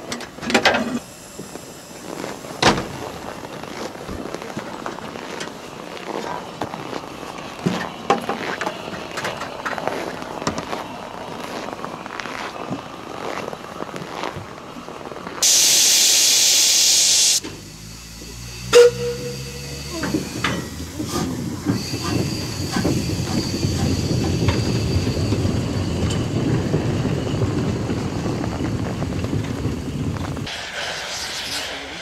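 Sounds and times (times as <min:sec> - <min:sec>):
locomotive wheels rumbling: 0:00.0 - 0:15.8, 0:17.2 - 0:32.0
steam hissing: 0:00.9 - 0:04.8, 0:15.4 - 0:32.0.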